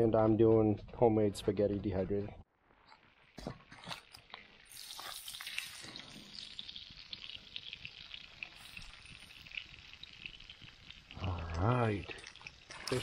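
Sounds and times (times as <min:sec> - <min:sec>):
fish sizzling in pan: 0:03.0 - 0:13.0.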